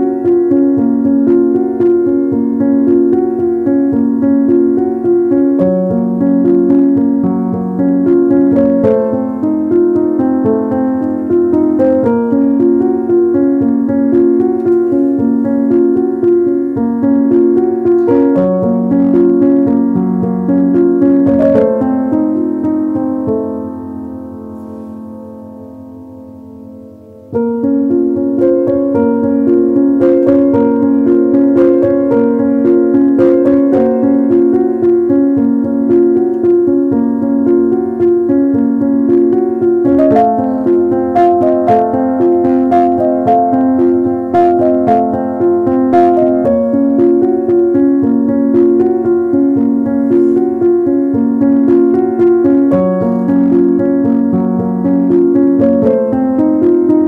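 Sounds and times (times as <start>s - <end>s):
slow piano melody: 0.0s - 57.0s.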